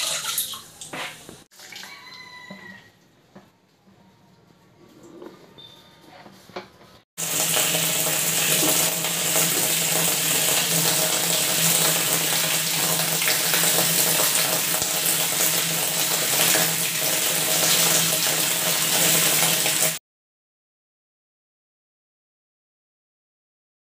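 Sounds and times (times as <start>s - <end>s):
water splashing in plastic tank: 0.0s - 2.1s.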